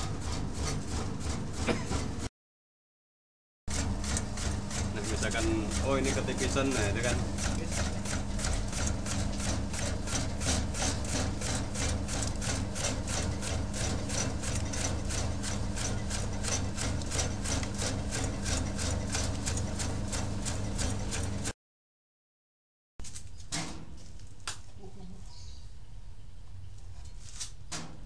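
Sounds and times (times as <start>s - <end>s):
cutter disc rasping: 3.7s - 21.5s
motor humming: 3.7s - 21.5s.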